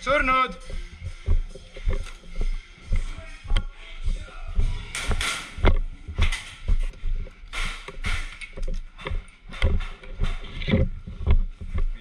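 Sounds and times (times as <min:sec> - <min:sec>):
clothing and gear rustling: 0:00.6 - 0:03.4
footsteps dull thuds: 0:00.6 - 0:12.0.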